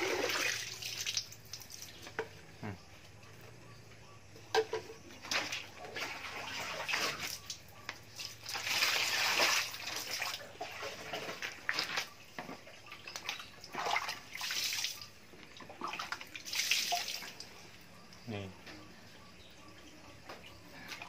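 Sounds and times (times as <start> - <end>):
water pouring and splashing: 0.0 - 2.2, 5.2 - 17.5.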